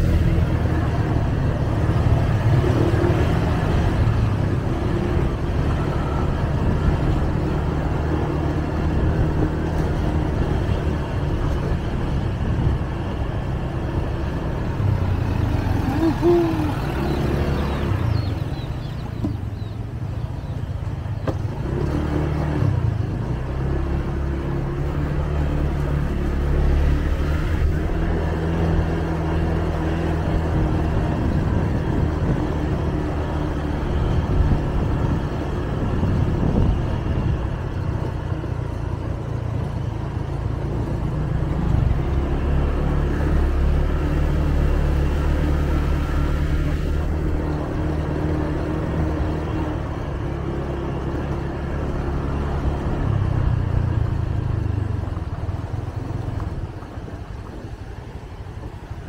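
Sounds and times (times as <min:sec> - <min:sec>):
road and wind noise: 0:00.0 - 0:59.0
scooter engine running: 0:14.0 - 0:22.9.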